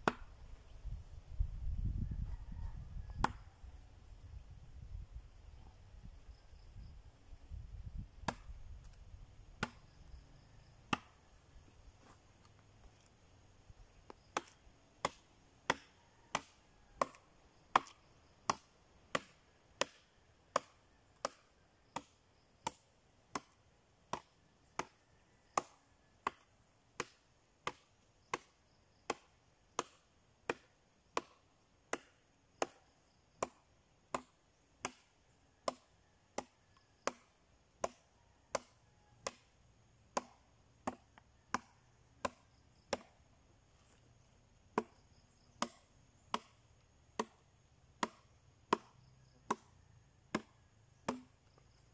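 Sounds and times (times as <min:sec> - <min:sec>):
machete chopping into logs: 0:00.0 - 0:00.3, 0:03.2 - 0:03.5, 0:08.2 - 0:10.0, 0:10.9 - 0:11.2, 0:14.1 - 0:25.0, 0:25.6 - 0:32.8, 0:33.4 - 0:39.5, 0:40.1 - 0:43.2, 0:44.7 - 0:49.7, 0:50.3 - 0:51.6.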